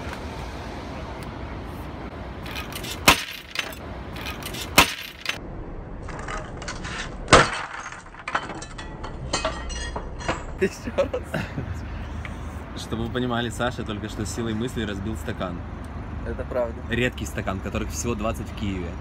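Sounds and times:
glass breaking: 2.5s - 5.4s, 6.2s - 10.6s.

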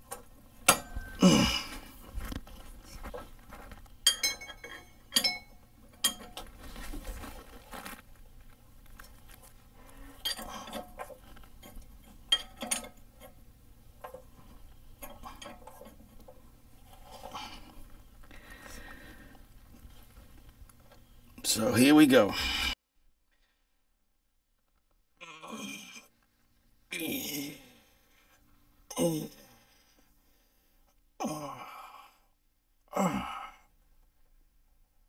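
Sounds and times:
wrench clinking on metal: 4.0s - 6.5s, 10.2s - 13.4s.

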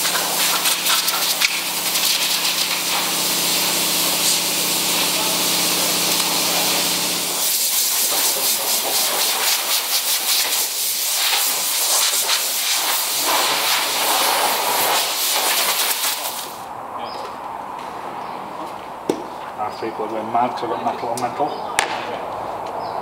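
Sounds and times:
air blow gun hissing: 0.0s - 16.7s.

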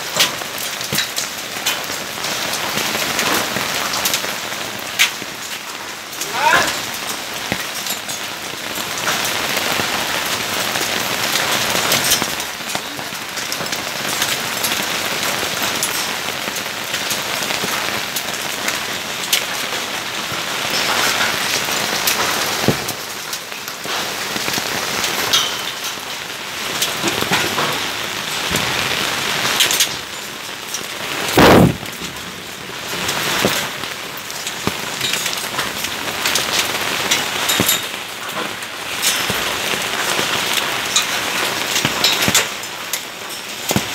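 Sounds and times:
hailstones ticking: 0.0s - 43.9s
heavy rain: 0.0s - 43.9s
loud thump: 31.4s - 32.0s.

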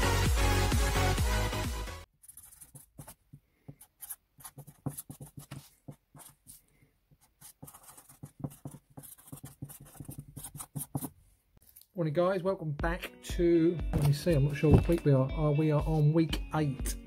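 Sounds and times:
marker scratching on paper: 2.1s - 11.2s.

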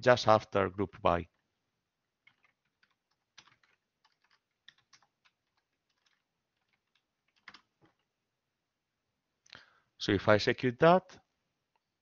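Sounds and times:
faint keyboard typing: 1.3s - 8.2s.

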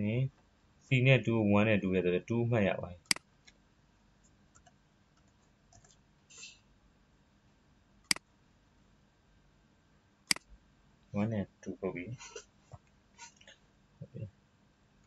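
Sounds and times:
computer mouse clicks: 4.2s - 6.0s.

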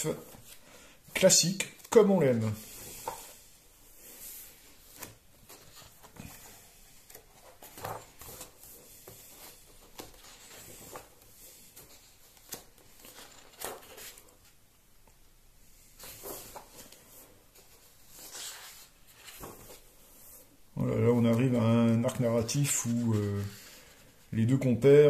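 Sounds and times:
pages being turned: 4.8s - 14.6s, 16.0s - 20.4s, 21.2s - 24.1s.

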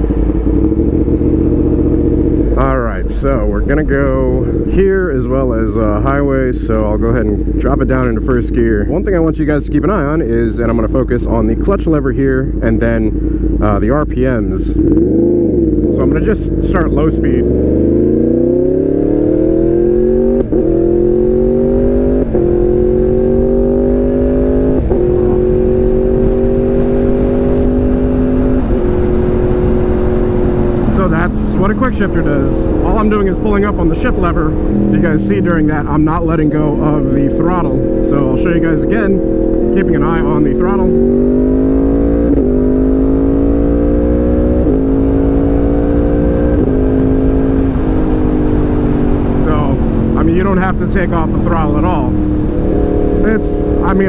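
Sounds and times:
motorcycle engine shifting up: 0.0s - 54.0s
wind rush: 17.7s - 45.7s, 46.5s - 54.0s.

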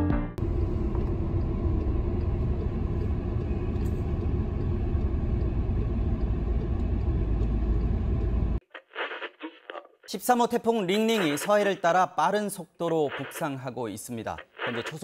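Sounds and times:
car road noise: 0.4s - 8.6s.

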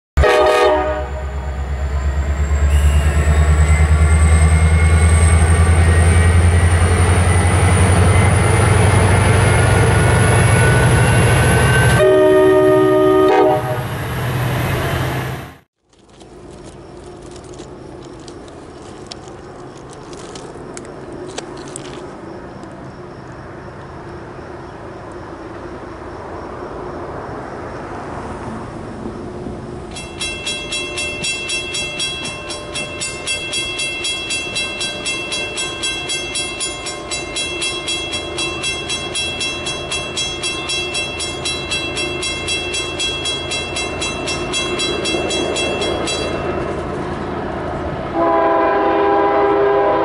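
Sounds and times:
locomotive air horn: 0.2s - 1.6s, 2.6s - 4.0s, 10.5s - 14.0s, 48.1s - 50.0s
diesel locomotive engine rumble: 0.2s - 50.0s
trackside ambience: 0.2s - 50.0s.

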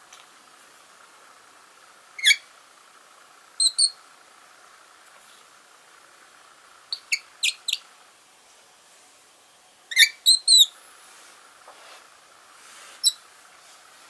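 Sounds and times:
bird chirping softly: 2.2s - 2.5s, 3.6s - 4.0s, 6.8s - 7.9s, 9.3s - 10.8s, 13.0s - 13.3s.

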